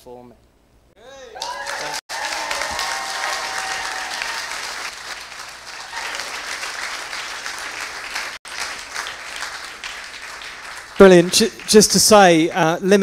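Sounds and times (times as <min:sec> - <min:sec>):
congregation applauding: 0:01.3 - 0:12.5.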